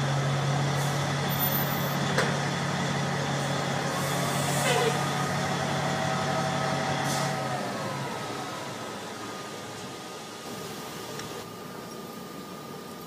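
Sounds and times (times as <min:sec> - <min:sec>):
diesel engine humming: 0:00.0 - 0:13.0.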